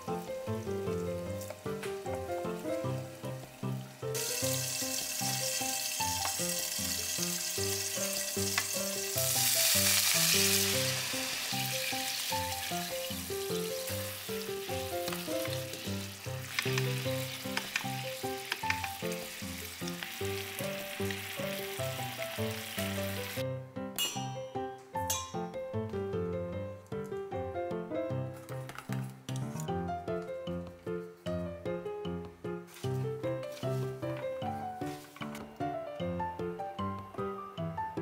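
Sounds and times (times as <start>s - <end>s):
light background music: 0.0s - 38.0s
food sizzling in a frying pan: 0.1s - 23.4s.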